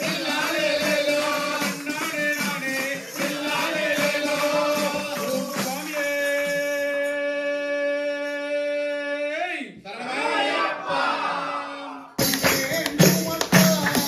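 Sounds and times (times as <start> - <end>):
rhythmic percussion strokes: 0.0 - 7.4, 12.2 - 14.0
devotional singing: 0.0 - 9.0.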